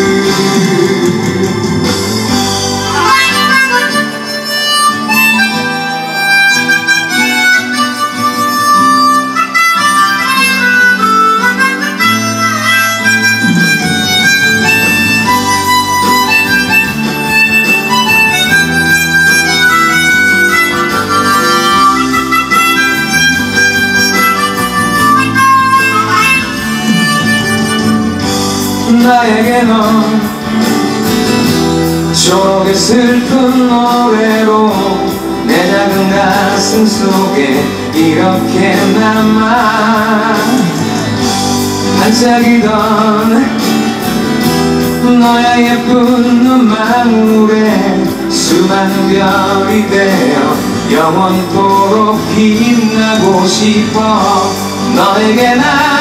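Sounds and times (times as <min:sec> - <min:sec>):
harmonica solo: 0:00.0 - 0:29.0
guitar and bass accompaniment: 0:00.0 - 0:56.0.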